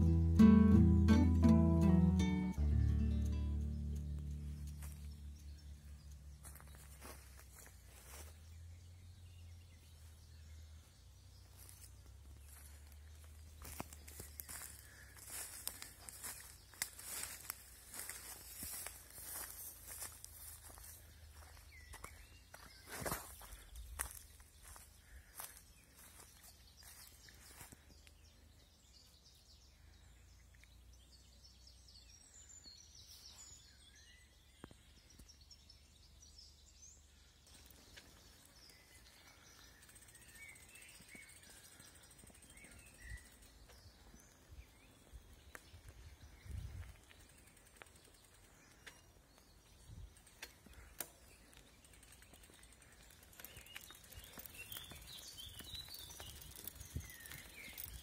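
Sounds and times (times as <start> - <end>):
faint bird chirps: 2.6 - 58.0
footsteps on dirt path: 4.0 - 8.6, 11.4 - 28.3, 40.4 - 48.0, 48.6 - 58.0.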